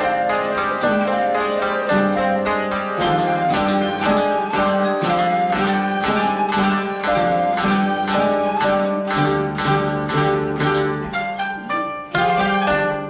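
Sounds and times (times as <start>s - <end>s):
plucked zithers playing: 0.0s - 13.0s.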